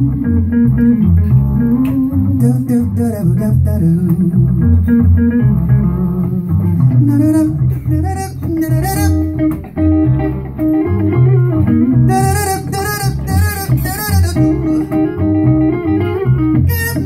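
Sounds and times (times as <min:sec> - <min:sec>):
man singing: 0:00.0 - 0:09.4, 0:12.1 - 0:15.1, 0:16.6 - 0:17.0
live band music: 0:00.0 - 0:17.0.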